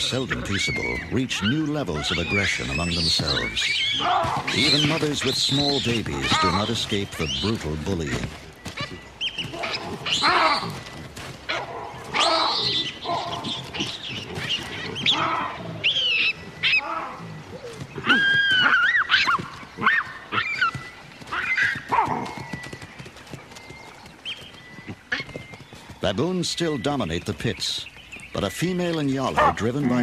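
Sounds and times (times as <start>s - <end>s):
baboons screaming and shrieking: 0.0s - 22.4s, 29.2s - 30.0s.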